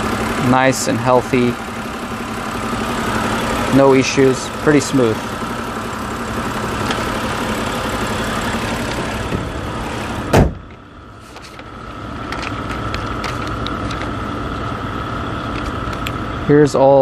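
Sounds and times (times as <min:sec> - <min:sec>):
car engine idling: 0:00.0 - 0:17.0
car hood slamming shut: 0:10.2 - 0:10.7.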